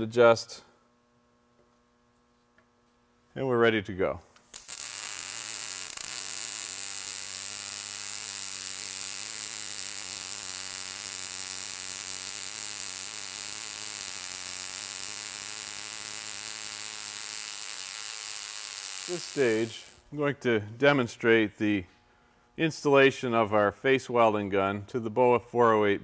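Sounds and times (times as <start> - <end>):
welding arc hissing and buzzing: 4.3 - 20.2.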